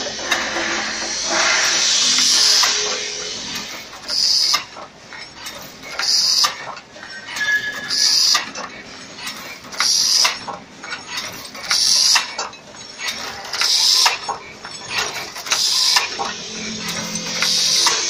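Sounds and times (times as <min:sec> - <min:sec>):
hissing metallic stroke: 0:00.0 - 0:04.8, 0:15.5 - 0:18.0
machine metallic clatter: 0:00.0 - 0:18.0.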